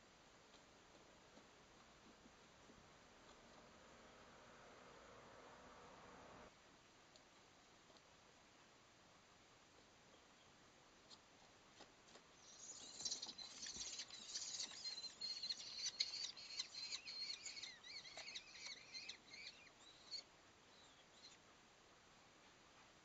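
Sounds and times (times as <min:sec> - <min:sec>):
chicks shrill begging calls: 0:12.6 - 0:20.2.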